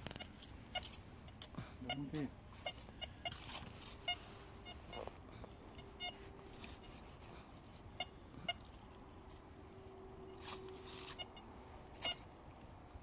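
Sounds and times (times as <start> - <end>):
metal detector beeps: 4.0 - 5.1, 5.8 - 7.0, 11.0 - 12.2.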